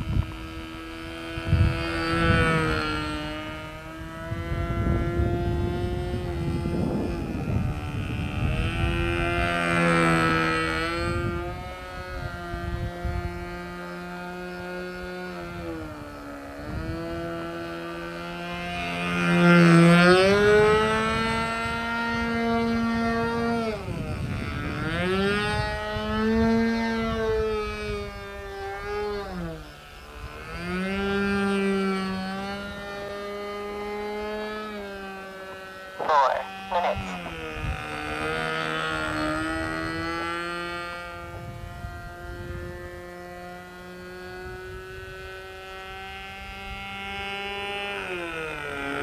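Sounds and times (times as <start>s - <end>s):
model plane engine buzzing: 0.0s - 49.0s.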